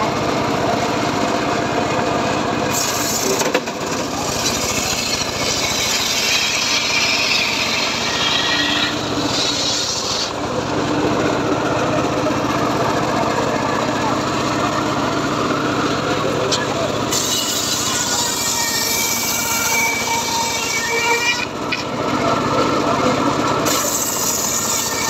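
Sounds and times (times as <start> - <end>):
saw bench engine running: 0.0 - 25.0
saw blade ripping wood: 2.7 - 10.4, 16.5 - 21.9, 23.6 - 25.0.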